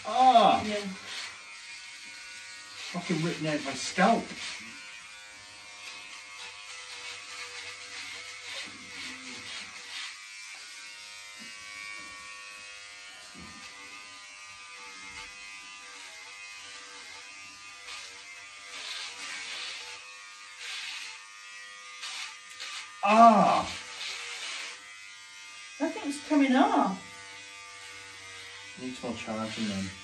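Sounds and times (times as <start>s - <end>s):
electric hair clippers buzzing: 0.0s - 30.0s
clippers rasping bursts: 23.6s - 24.8s.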